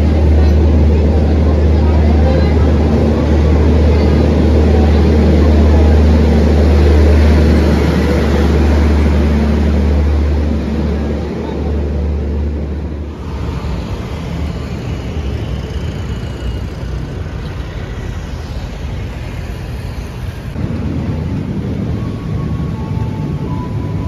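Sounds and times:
electric train hum: 0:00.0 - 0:24.0
street traffic: 0:00.0 - 0:24.0
train on elevated line: 0:00.0 - 0:24.0
train rumbling through station: 0:00.0 - 0:24.0.

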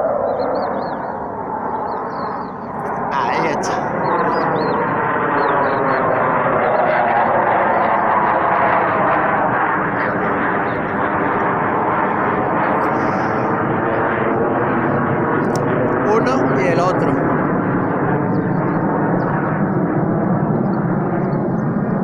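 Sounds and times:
jet fighters passing overhead: 0:00.0 - 0:22.0.

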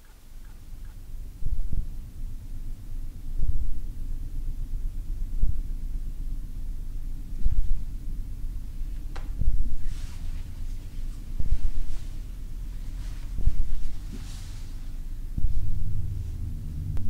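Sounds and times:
low rumbling drone: 0:00.0 - 0:17.0
deep thuds: 0:01.3 - 0:02.1, 0:03.3 - 0:04.0, 0:05.3 - 0:06.6, 0:07.3 - 0:17.0.

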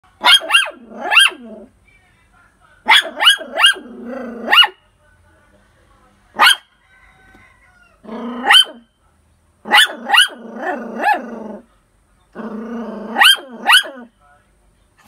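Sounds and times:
dog barking: 0:00.2 - 0:01.4, 0:02.9 - 0:04.8, 0:06.4 - 0:06.8, 0:08.2 - 0:08.9, 0:09.7 - 0:10.4, 0:11.0 - 0:11.2, 0:13.1 - 0:14.1.

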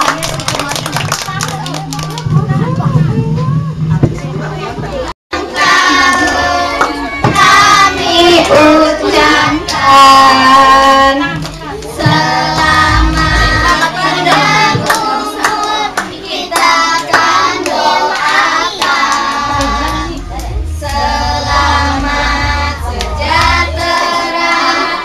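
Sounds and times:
hand clapping: 0:00.0 - 0:02.3, 0:13.7 - 0:21.0
adults and children singing: 0:05.4 - 0:25.0.

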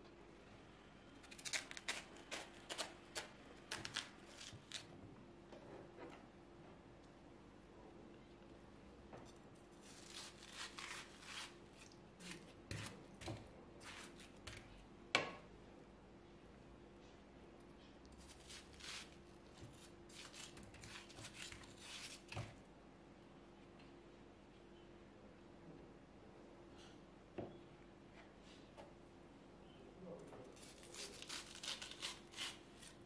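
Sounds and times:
knife slicing watermelon: 0:09.3 - 0:14.7, 0:18.2 - 0:22.6, 0:30.5 - 0:33.0.

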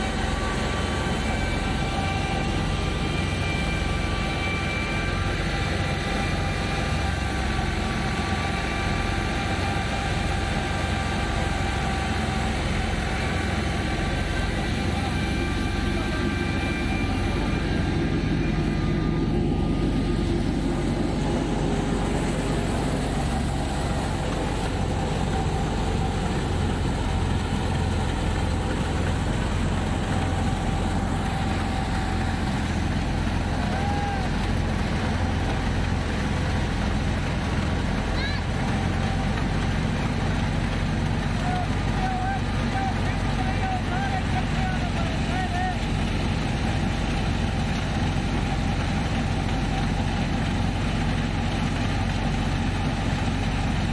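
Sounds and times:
high whine: 0:00.0 - 0:35.3
thresher mechanical drone: 0:00.0 - 0:53.9.

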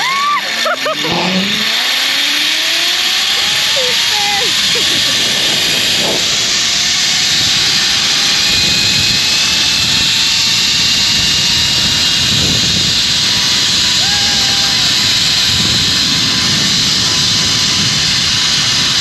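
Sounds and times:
faint rising whine: 0:00.0 - 0:03.8
zipline trolley rushing hiss: 0:00.0 - 0:19.0.

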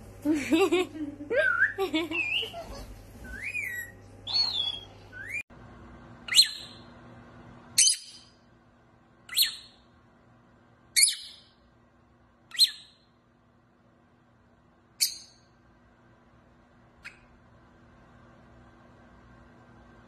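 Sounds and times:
parakeet whistled calls: 0:03.3 - 0:05.4, 0:06.3 - 0:06.8, 0:07.8 - 0:08.4, 0:09.3 - 0:09.8, 0:11.0 - 0:11.5, 0:12.5 - 0:13.0
bird sharp high chirps: 0:03.4 - 0:05.4, 0:07.8 - 0:08.4, 0:11.0 - 0:11.5, 0:12.5 - 0:13.0.

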